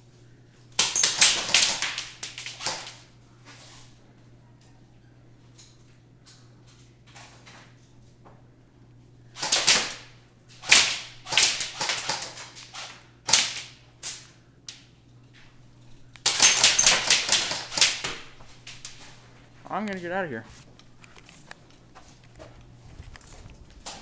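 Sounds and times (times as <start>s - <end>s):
airsoft gunshots: 9.4s - 13.7s, 16.2s - 18.3s.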